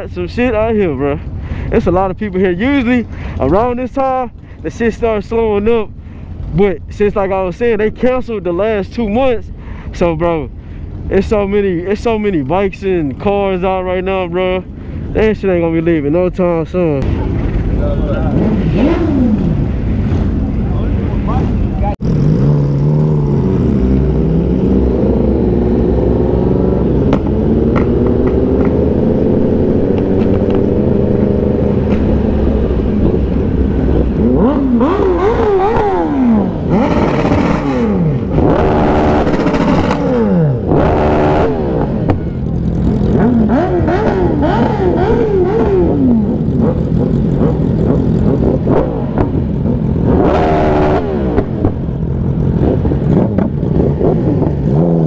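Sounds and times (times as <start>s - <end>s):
motorcycle engine revving: 17.0s - 55.0s
wind noise: 17.0s - 55.0s.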